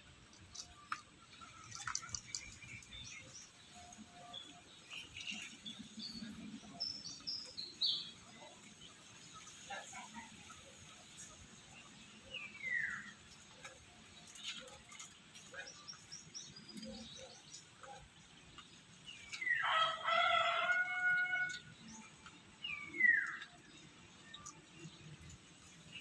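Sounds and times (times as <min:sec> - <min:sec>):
rooster crowing: 0:19.6 - 0:21.7.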